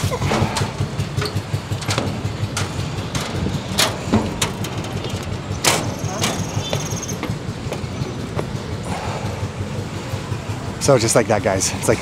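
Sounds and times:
boat engine idling: 0.0s - 12.0s
sharp knocks: 0.3s - 8.5s.

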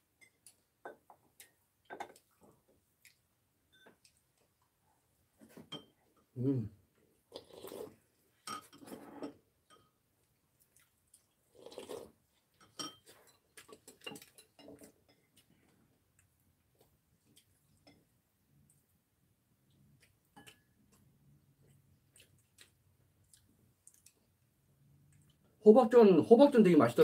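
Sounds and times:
utensils clinking on dishes: 8.4s - 9.9s, 12.6s - 15.3s.

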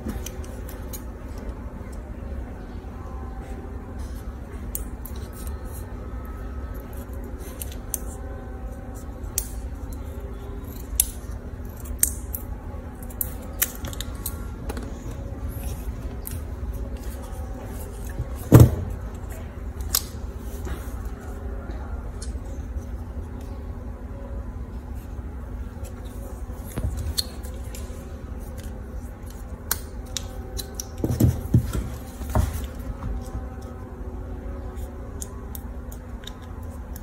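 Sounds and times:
low steady hum: 0.0s - 37.0s
scissors snipping plastic straw: 19.8s - 20.2s.

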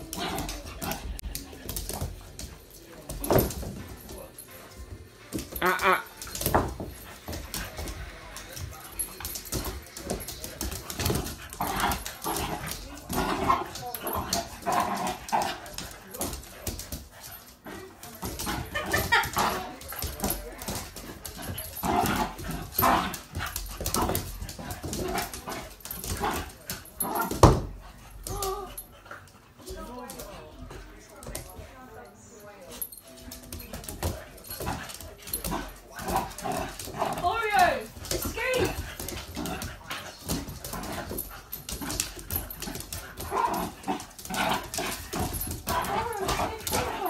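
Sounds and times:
paws scuffling on floor: 0.0s - 47.0s
puppies play-fighting: 0.0s - 47.0s
claws clicking on floor: 33.3s - 47.0s.

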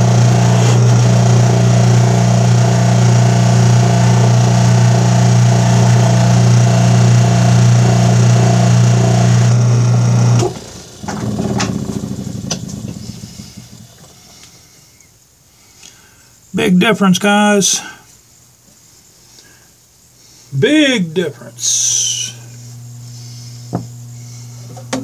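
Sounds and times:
bench buffer humming: 0.0s - 15.2s, 20.2s - 25.0s.

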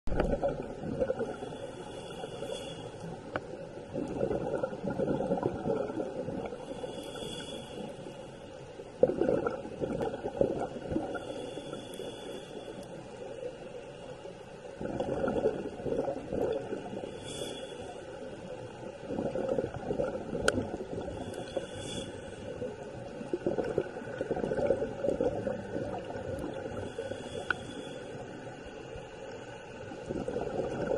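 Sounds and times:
exhaled bubbles gurgling underwater: 0.1s - 13.8s, 14.6s - 30.9s
regulator inhalation hiss: 1.3s - 3.2s, 6.6s - 8.5s, 11.1s - 13.1s, 16.9s - 18.2s, 21.1s - 22.6s, 26.7s - 28.3s.

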